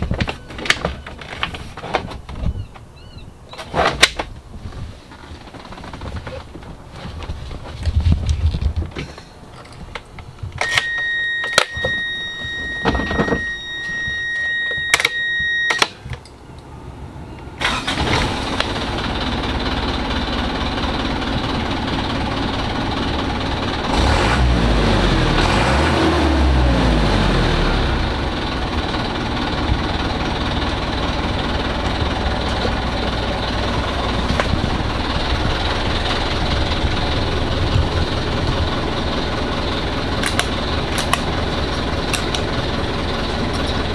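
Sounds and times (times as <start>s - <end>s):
electronic warning tone: 10.6s - 16.0s
diesel engine starting and idling: 16.7s - 43.9s
engine revving: 23.8s - 28.6s.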